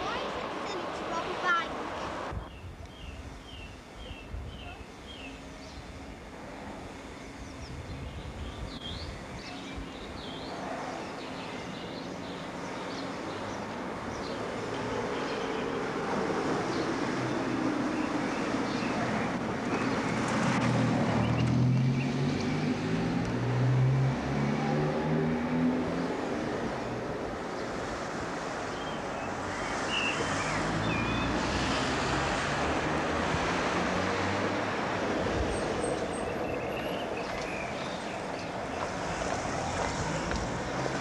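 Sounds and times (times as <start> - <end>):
road and wind noise: 0.0 - 41.0
vehicle engine passing: 20.0 - 26.7, 30.2 - 35.9, 38.8 - 41.0.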